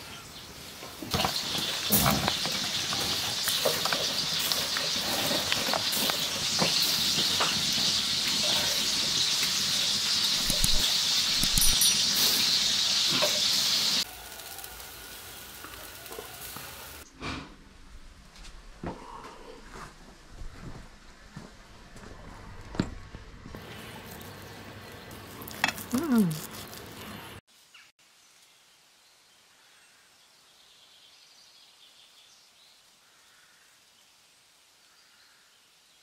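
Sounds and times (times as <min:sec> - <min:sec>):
wood fire crackling: 0:00.6 - 0:17.1, 0:23.2 - 0:27.4
fire pops: 0:10.3 - 0:12.4.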